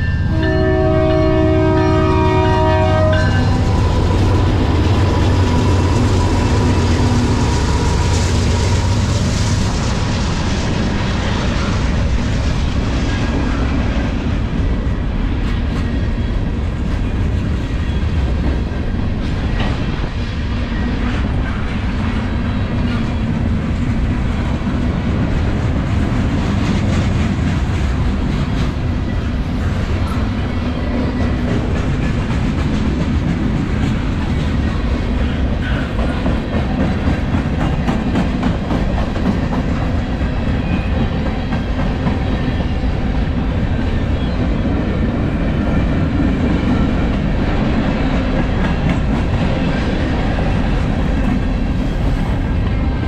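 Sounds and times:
locomotive engines rumbling: 0.0 - 53.0
train wheels clattering on rails: 0.0 - 53.0.

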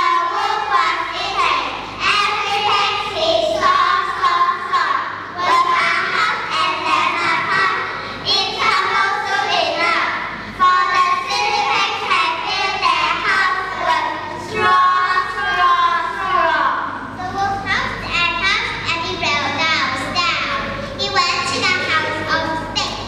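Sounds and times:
children singing in unison: 0.0 - 16.5.

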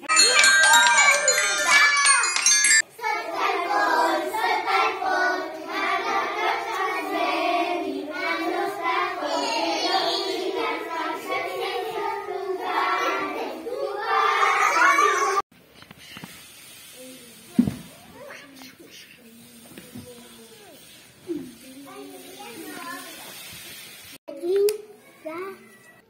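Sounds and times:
children singing: 0.4 - 15.4.

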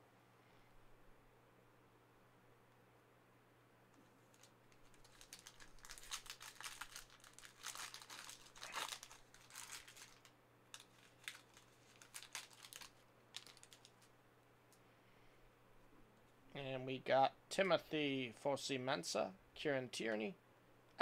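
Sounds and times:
card pack wrapper crinkling: 4.3 - 14.1.

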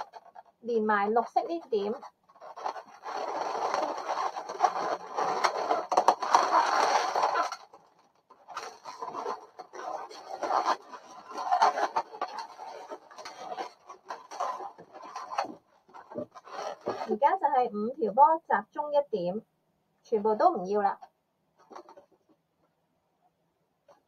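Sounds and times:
balloons rubbing and squeaking: 0.0 - 18.2, 21.6 - 22.2.

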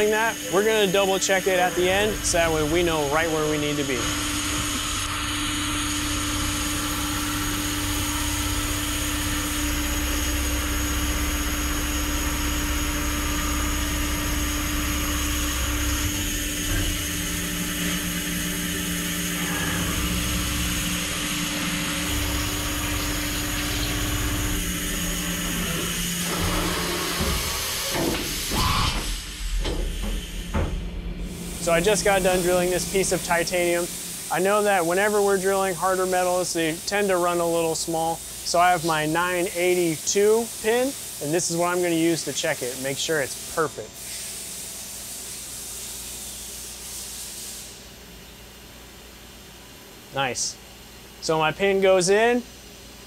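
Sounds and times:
milling machine drilling tone: 0.0 - 29.1, 31.6 - 37.8
coolant spray hissing: 0.0 - 29.4, 31.3 - 47.8.

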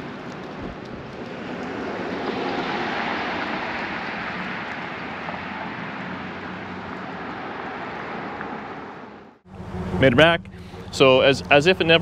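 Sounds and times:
vehicle passing close by: 0.0 - 12.0.

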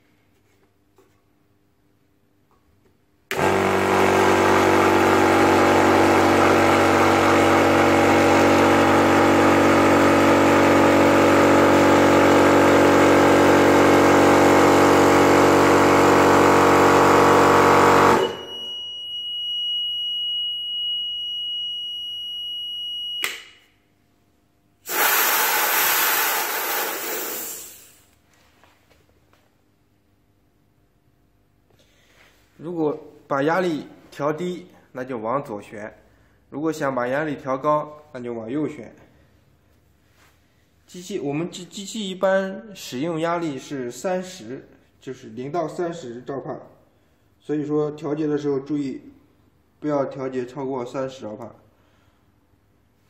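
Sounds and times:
air compressor running: 3.3 - 18.6, 24.8 - 28.2
steady high alarm beep: 18.2 - 23.3
hiss of air: 24.9 - 28.1.

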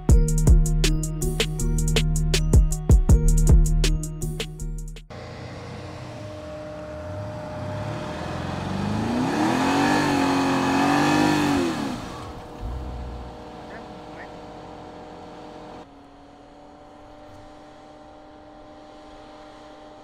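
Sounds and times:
car engine revving hard: 5.1 - 20.0.

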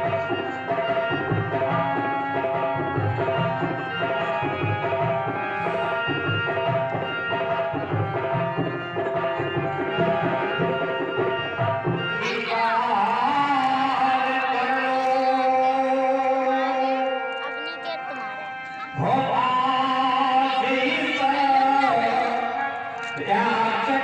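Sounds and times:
melody of held notes: 12.1 - 24.0.

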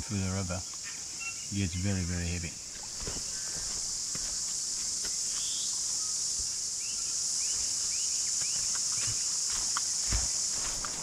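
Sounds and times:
cicadas chorus: 0.0 - 11.0
bird chirping: 0.6 - 3.8, 4.7 - 9.4.

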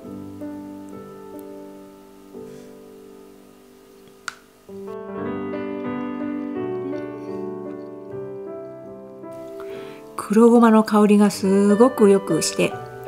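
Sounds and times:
piano music: 0.0 - 13.0
brief sharp click: 4.2 - 4.4.

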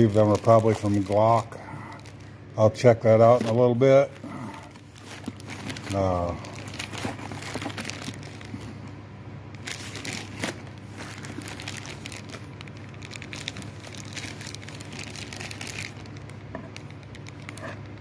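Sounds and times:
plastic bags crinkling: 0.0 - 9.0, 9.6 - 18.0
steady low hum: 0.0 - 18.0.

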